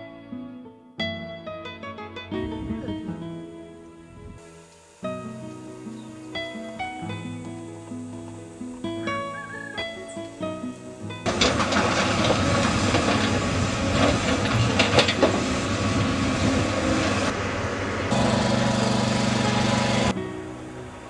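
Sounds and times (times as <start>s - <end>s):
earthmover diesel drone: 4.4s - 21.0s
rock and metal clanks and scrapes: 11.2s - 15.5s
excavator diesel engine: 11.2s - 21.0s.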